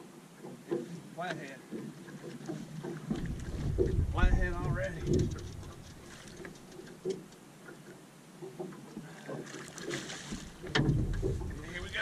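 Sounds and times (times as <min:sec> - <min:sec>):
fish splashing in water: 0:01.7 - 0:07.2, 0:08.4 - 0:12.0.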